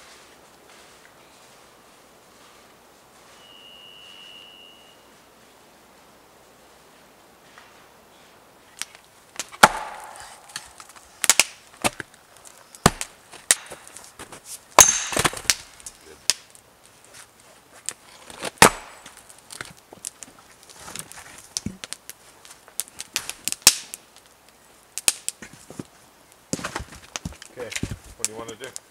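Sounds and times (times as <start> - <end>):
axe chopping firewood: 9.4 - 12.2, 12.8 - 16.5, 17.9 - 20.2, 20.9 - 22.0.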